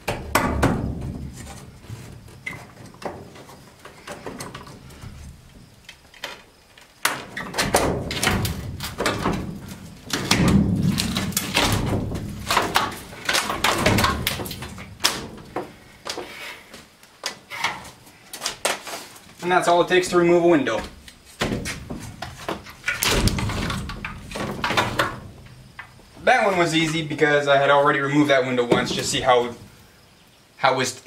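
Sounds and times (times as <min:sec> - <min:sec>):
metal knocking and scraping: 0:00.0 - 0:06.3.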